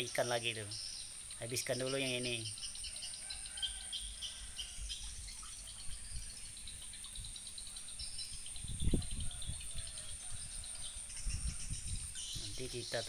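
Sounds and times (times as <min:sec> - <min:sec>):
rain dripping: 0:00.0 - 0:10.0
faint chirps: 0:00.0 - 0:13.0
insect chirring: 0:00.0 - 0:13.0.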